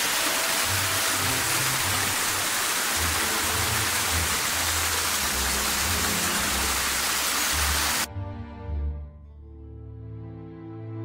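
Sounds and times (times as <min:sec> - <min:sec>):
waterfall rushing over rocks: 0:00.0 - 0:08.1.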